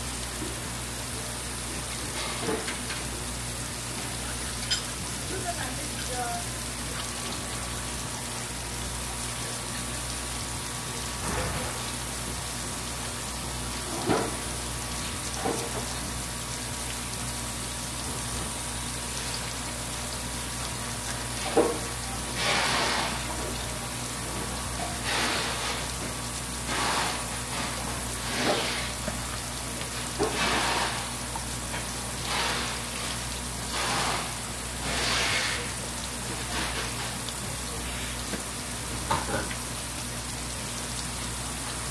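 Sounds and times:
tap water splashing: 0:00.4 - 0:00.6, 0:02.0 - 0:03.1, 0:12.7 - 0:32.7, 0:33.8 - 0:41.9.

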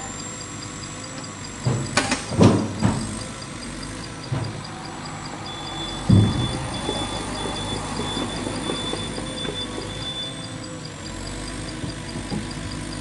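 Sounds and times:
excavator diesel engine running: 0:00.0 - 0:13.0
wooden logs knocking together: 0:06.0 - 0:10.2.

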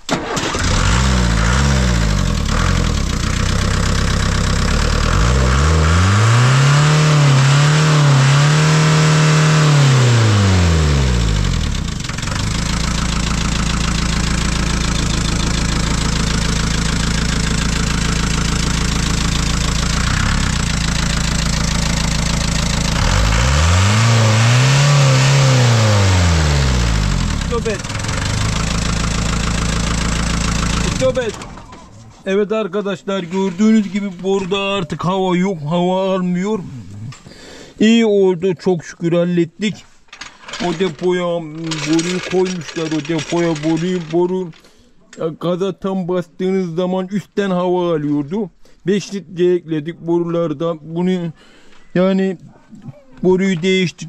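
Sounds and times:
diesel engine revving and idling: 0:00.3 - 0:31.7.

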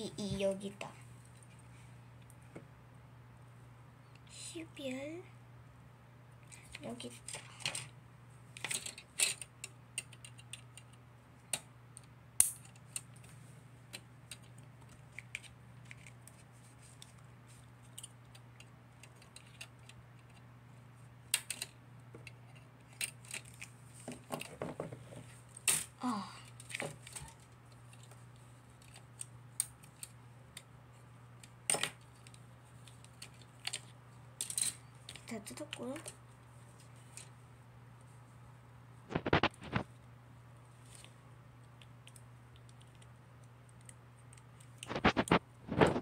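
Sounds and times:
low steady hum: 0:00.0 - 0:46.0
plastic parts clicking and snapping: 0:08.6 - 0:13.3, 0:13.9 - 0:17.1, 0:17.9 - 0:20.4, 0:21.3 - 0:24.7.

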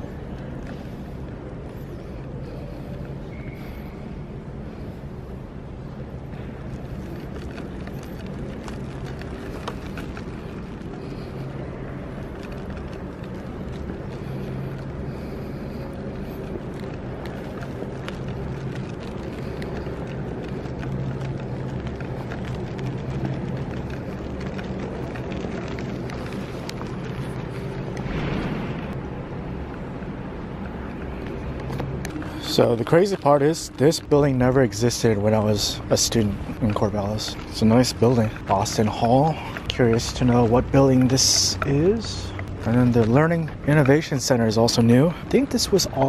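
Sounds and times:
low hum of indoor hall: 0:00.0 - 0:46.0.

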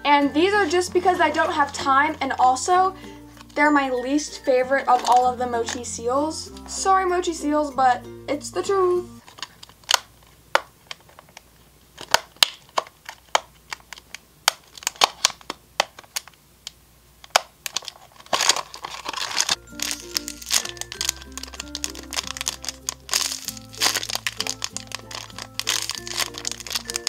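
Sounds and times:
background music: 0:00.0 - 0:09.3, 0:19.6 - 0:27.0
plastic crinkling: 0:04.8 - 0:05.8, 0:09.2 - 0:16.4, 0:17.2 - 0:27.0
plastic packaging clicking and cracking: 0:04.9 - 0:05.8, 0:09.2 - 0:27.0.

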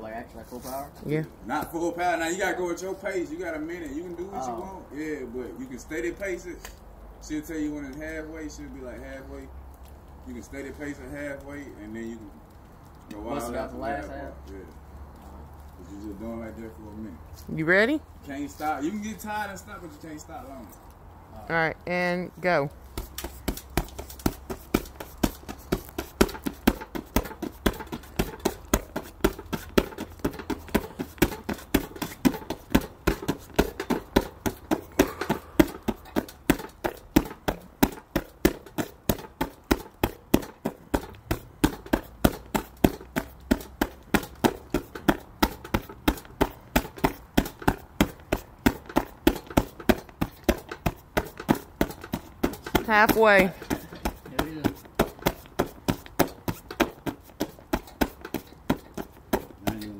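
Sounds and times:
punches thudding into punching bag: 0:23.5 - 0:59.9.

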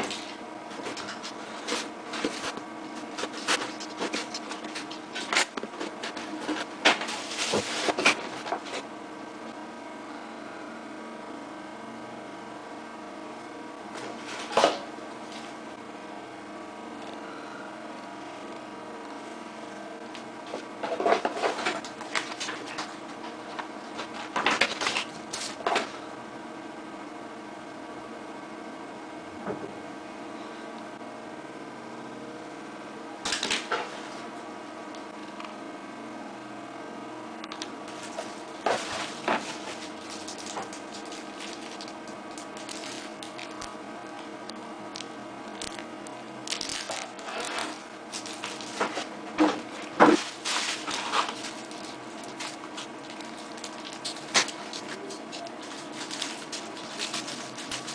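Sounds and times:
steady low hum: 0:00.0 - 0:57.9
plastic wrapping crinkling: 0:37.9 - 0:43.6, 0:46.4 - 0:57.9.

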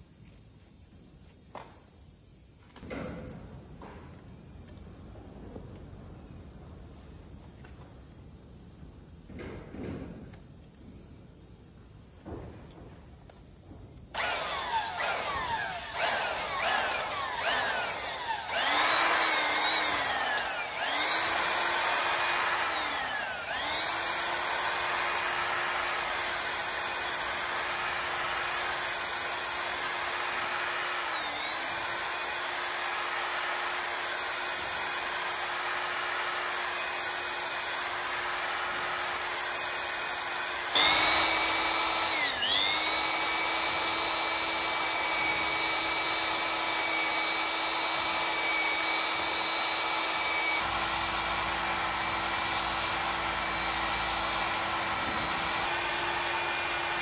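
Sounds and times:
electric drill motor whine: 0:14.2 - 0:57.0.

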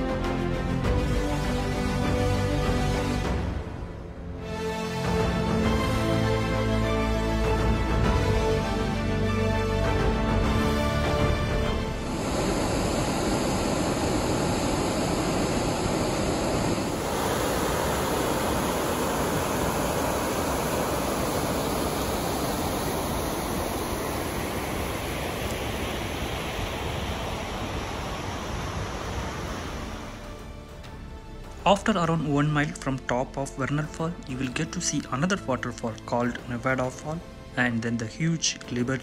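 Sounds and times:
background music: 0:00.0 - 0:14.2, 0:29.6 - 0:39.0
waterfall rushing: 0:09.8 - 0:30.8.

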